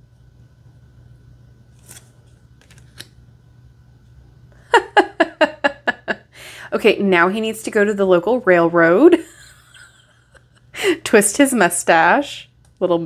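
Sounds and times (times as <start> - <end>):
faint low hum: 0.0 - 13.0
cards clicking: 1.7 - 3.2
woman laughing: 4.6 - 6.4, 9.0 - 11.2.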